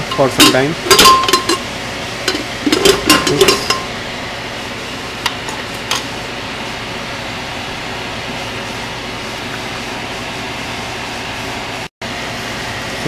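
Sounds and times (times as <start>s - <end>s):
metal ladle knocking metal pot: 0.1s - 1.6s, 2.3s - 3.9s.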